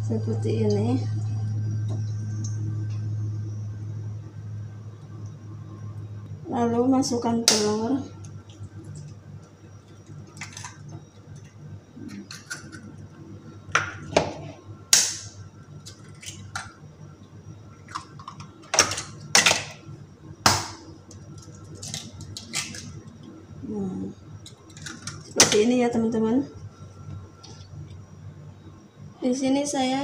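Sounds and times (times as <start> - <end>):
steady low hum: 0.0 - 30.0
eggshells cracking: 20.4 - 22.9.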